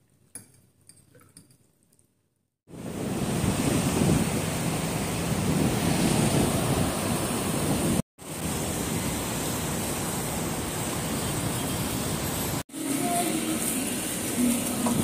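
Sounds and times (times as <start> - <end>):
city street traffic: 2.7 - 15.0
wind on microphone: 2.8 - 8.0.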